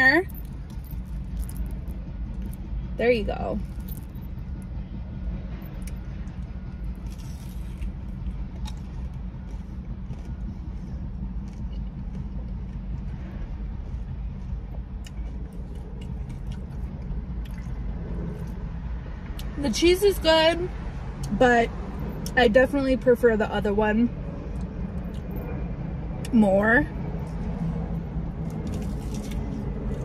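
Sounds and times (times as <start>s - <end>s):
low rumble inside car: 0.0s - 30.0s
person chewing food: 5.8s - 18.6s.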